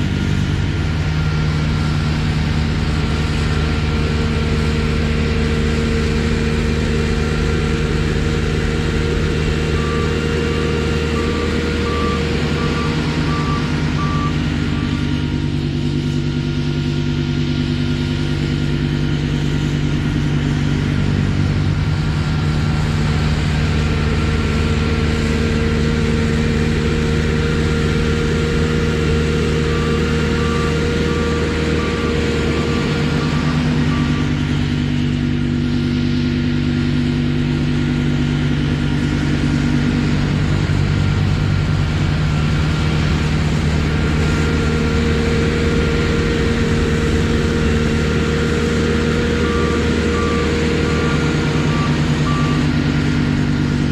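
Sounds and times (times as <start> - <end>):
diesel engine running: 0.0 - 53.9
backup alarm beeping: 8.4 - 15.5, 26.7 - 34.9, 43.9 - 53.9.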